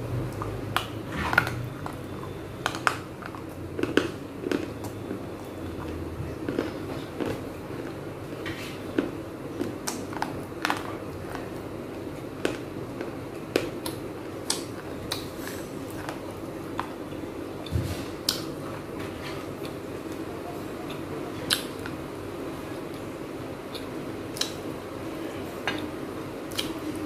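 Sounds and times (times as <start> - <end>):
clay pieces crunching when chewed: 0.2 - 8.0, 8.9 - 18.6.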